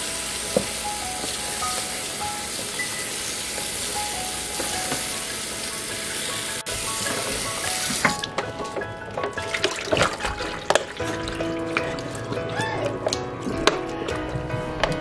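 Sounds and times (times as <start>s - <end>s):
tap water running: 0.0s - 15.0s
water splashing over leaves: 6.6s - 13.8s.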